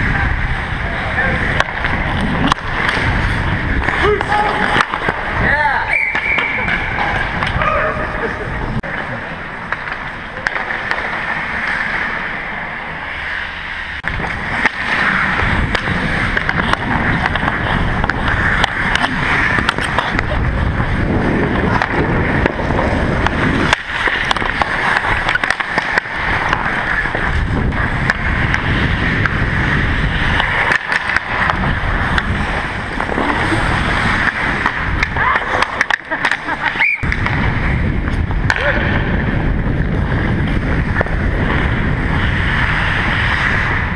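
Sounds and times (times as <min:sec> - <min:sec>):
skates scraping ice: 0:00.0 - 0:43.9
wind rushing over microphone: 0:00.0 - 0:43.9
sticks clicking on puck: 0:01.4 - 0:05.4, 0:08.8 - 0:12.4, 0:14.0 - 0:20.8, 0:21.5 - 0:37.4.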